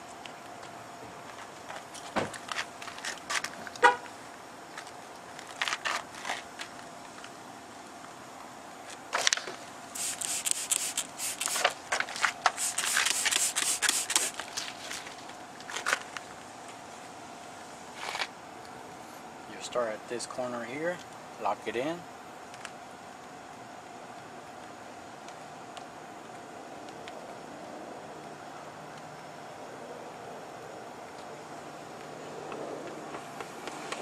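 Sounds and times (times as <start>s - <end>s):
faint steady hum: 0.0s - 34.0s
scratchy rubbing strokes: 10.0s - 11.6s, 12.6s - 14.4s.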